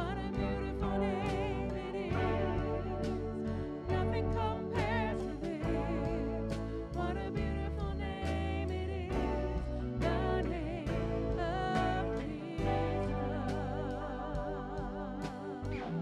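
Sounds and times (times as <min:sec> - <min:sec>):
bass guitar: 0:00.0 - 0:16.0
drum kit: 0:00.0 - 0:16.0
electric guitar: 0:00.0 - 0:16.0
keyboard: 0:00.0 - 0:16.0
woman singing: 0:00.0 - 0:16.0.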